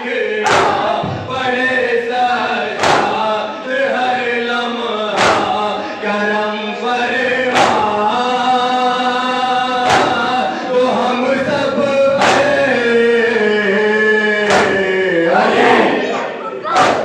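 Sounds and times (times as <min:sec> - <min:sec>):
men chanting into a microphone: 0:00.0 - 0:17.0
chest-beating slaps: 0:00.4 - 0:01.0, 0:02.8 - 0:03.3, 0:05.1 - 0:05.6, 0:07.5 - 0:08.0, 0:09.8 - 0:10.4, 0:12.2 - 0:12.7, 0:14.4 - 0:14.9, 0:16.7 - 0:17.0.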